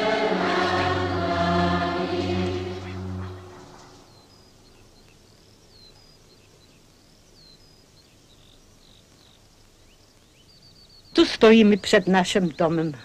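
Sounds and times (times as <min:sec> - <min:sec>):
choir singing: 0:00.0 - 0:04.1
birds chirping and whistling: 0:02.6 - 0:13.0.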